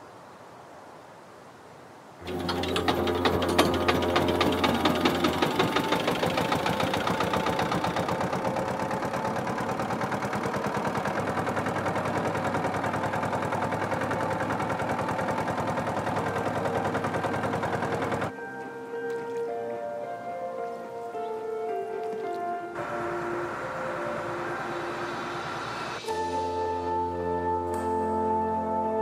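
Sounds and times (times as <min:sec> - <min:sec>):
boat engine running: 0:02.2 - 0:18.5, 0:22.0 - 0:27.6.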